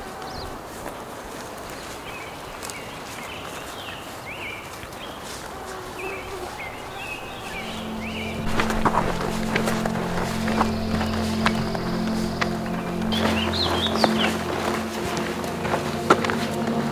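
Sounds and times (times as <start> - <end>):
steady outdoor hiss: 0.0 - 16.9
bird calling with high notes: 6.0 - 16.9.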